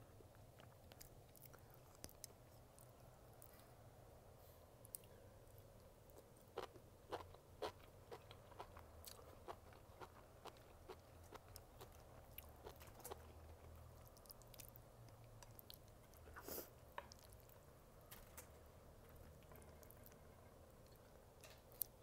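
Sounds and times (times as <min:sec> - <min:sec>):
person chewing mushrooms: 0:06.2 - 0:17.6.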